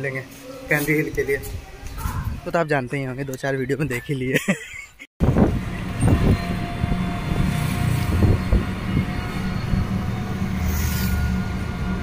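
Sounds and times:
vehicle rumbling and rattling: 5.2s - 12.0s.

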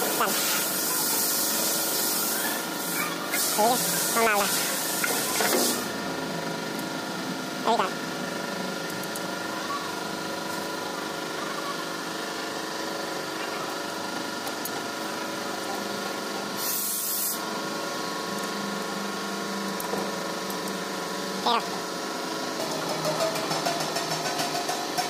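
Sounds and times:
steady background hum: 0.0s - 25.0s
short burst of hiss: 16.6s - 17.4s.

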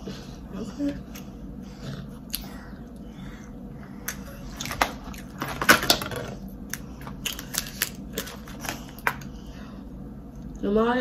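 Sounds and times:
crab shells cracking: 6.7s - 9.3s.

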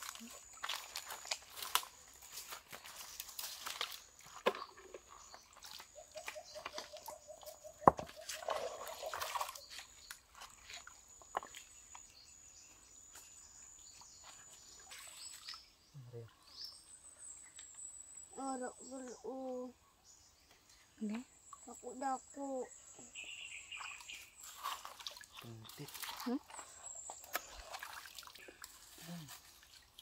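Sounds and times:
stones knocking and leaves rustling: 0.0s - 6.9s, 7.8s - 12.0s.

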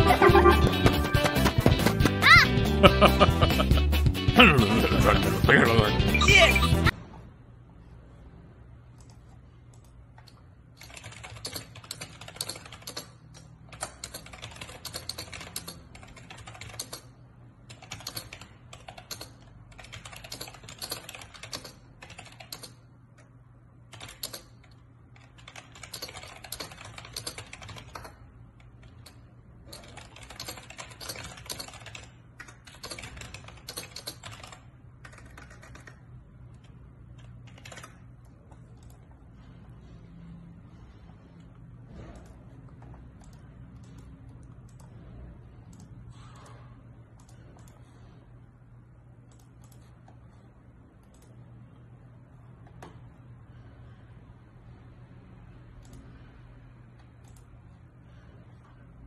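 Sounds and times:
typing on computer keyboard: 9.0s - 22.9s, 23.9s - 39.1s, 42.0s - 45.1s, 49.3s - 50.2s, 57.0s - 57.5s.

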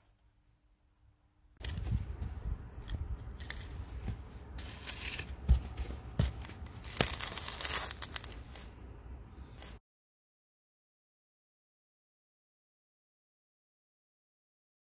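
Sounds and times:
crunching of snow and earth: 1.6s - 9.8s.

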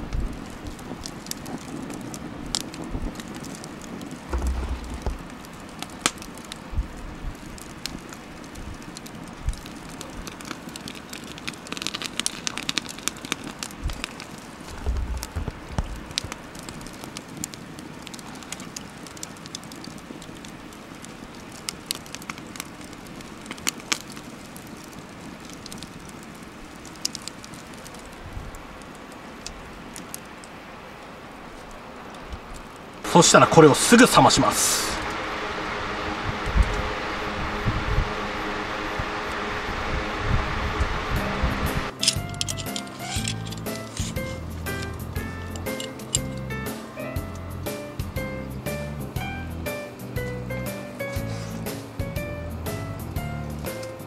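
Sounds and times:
wood fire crackling: 0.0s - 54.0s
low rumbles: 4.2s - 7.6s, 13.8s - 16.5s, 33.0s - 50.6s.

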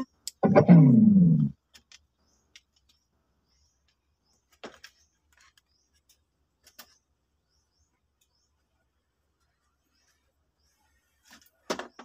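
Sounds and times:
faint plastic clicks: 1.6s - 3.1s.

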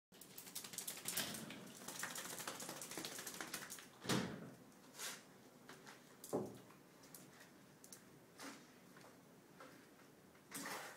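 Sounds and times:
dog claws clicking on tiles: 0.2s - 3.9s.

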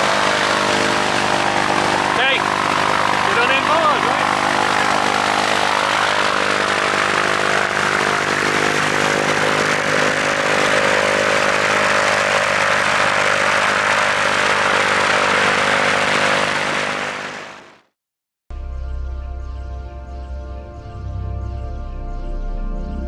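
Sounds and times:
plane engine idling: 0.0s - 17.7s
prop wash rushing on microphone: 0.0s - 17.8s.

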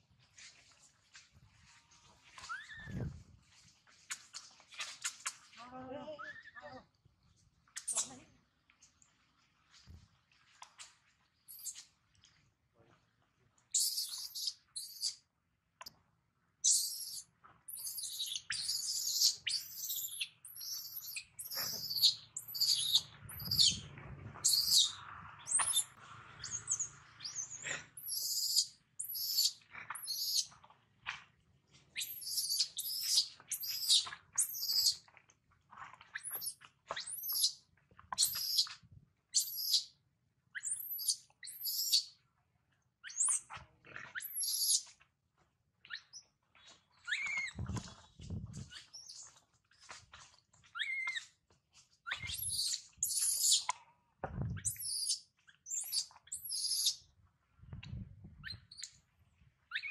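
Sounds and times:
baby monkey screaming: 16.7s - 23.8s, 24.4s - 24.9s, 25.5s - 30.4s, 32.0s - 35.0s, 38.2s - 38.6s, 39.4s - 39.8s, 40.6s - 42.0s, 44.2s - 44.8s, 52.1s - 53.7s, 54.6s - 57.0s.

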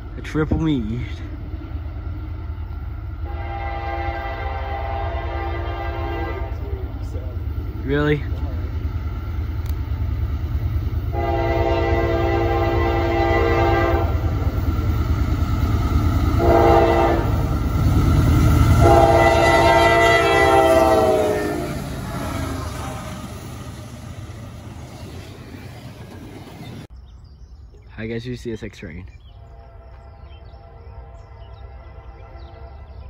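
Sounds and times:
train rumbling on rails: 0.0s - 33.0s
train horn blasts: 3.2s - 6.8s, 11.1s - 14.4s, 16.4s - 17.6s, 18.6s - 23.1s, 29.4s - 33.0s.

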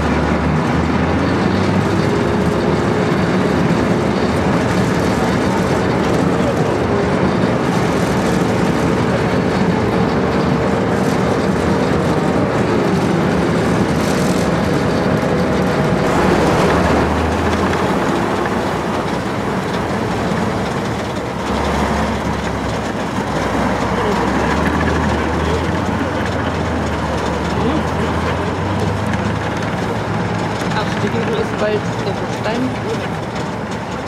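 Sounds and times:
tank diesel engine running: 0.0s - 34.0s
thin whine: 16.0s - 21.4s
steel tracks clattering: 16.0s - 34.0s.

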